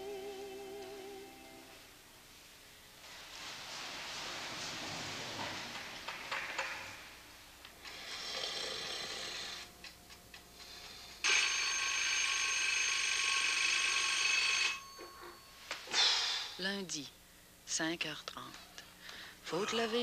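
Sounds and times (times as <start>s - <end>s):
alarm clock ringing: 11.2s - 15.6s.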